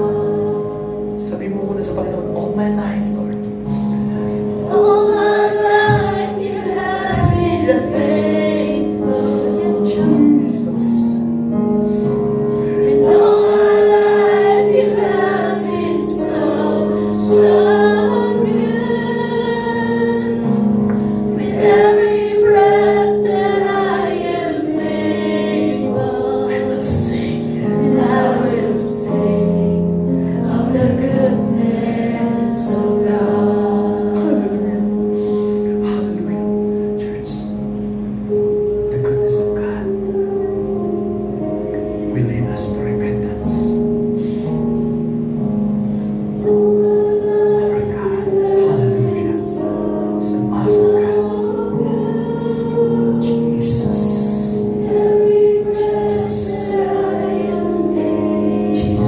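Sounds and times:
congregation singing worship song: 0:00.0 - 0:59.0
long held chords: 0:00.0 - 0:59.0.

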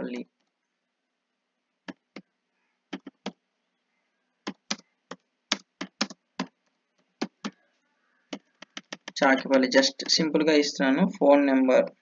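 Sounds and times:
keyboard keys clicking: 0:02.9 - 0:03.4, 0:04.4 - 0:06.5, 0:08.3 - 0:09.2.

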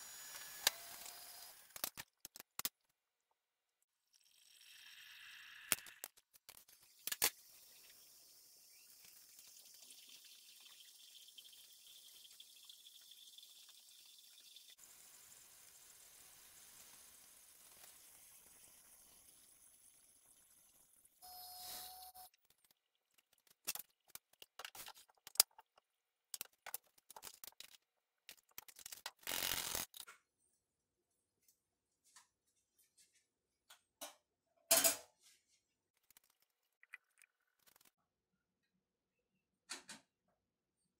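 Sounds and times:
coffee maker hissing: 0:07.4 - 0:20.8
coffee pouring into mug: 0:36.8 - 0:37.9.

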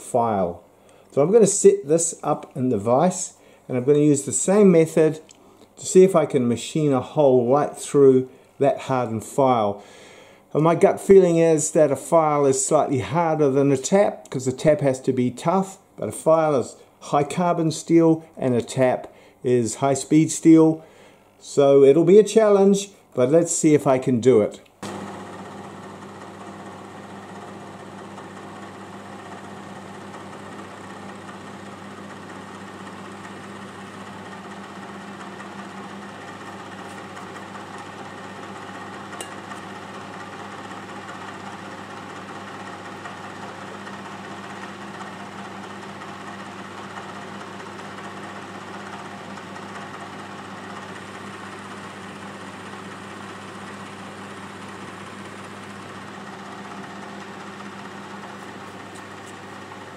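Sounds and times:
milling machine motor hum: 0:24.8 - 0:59.9.

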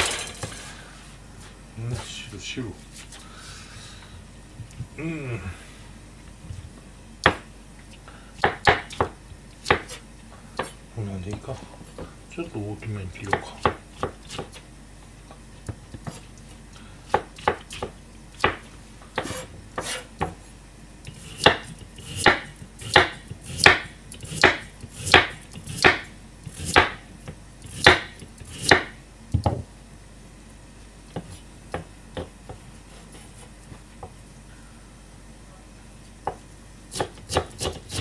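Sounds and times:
knife chopping on cutting board: 0:07.2 - 0:07.5, 0:08.4 - 0:10.0, 0:10.6 - 0:11.4, 0:13.3 - 0:14.6, 0:17.1 - 0:20.4, 0:21.1 - 0:27.0, 0:27.6 - 0:29.6, 0:36.2 - 0:38.0.

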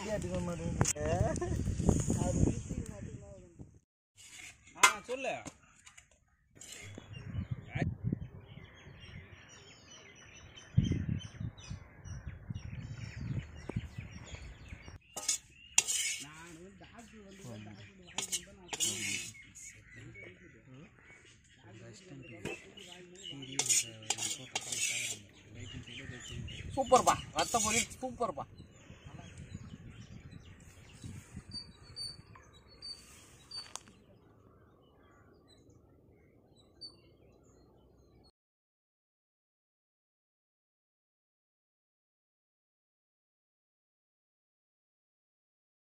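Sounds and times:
scraping and rustling: 0:04.2 - 0:05.1, 0:15.2 - 0:16.6, 0:18.2 - 0:19.5, 0:23.5 - 0:25.3, 0:26.9 - 0:28.0
birds chirping: 0:04.3 - 0:38.3
ladle stirring crumbly food: 0:15.2 - 0:16.6, 0:18.2 - 0:19.7, 0:23.5 - 0:25.3, 0:26.8 - 0:28.0.

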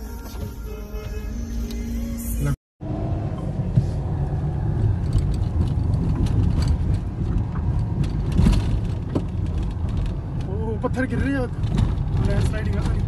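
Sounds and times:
car engine and road rumble: 0:00.0 - 0:13.0
light knocks and rattles: 0:05.0 - 0:13.0.

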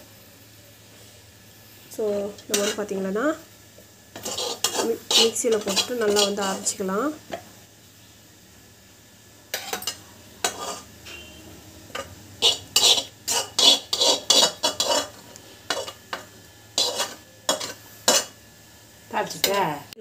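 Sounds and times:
spatula scraping a pan: 0:02.3 - 0:02.9, 0:04.1 - 0:07.4, 0:09.5 - 0:18.4.

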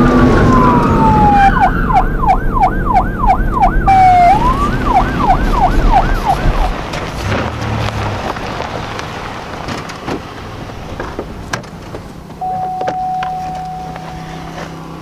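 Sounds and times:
electronic warning tone: 0:00.0 - 0:06.6, 0:12.4 - 0:14.4
car tyres crunching on gravel: 0:04.8 - 0:15.0
low hum: 0:12.4 - 0:15.0.

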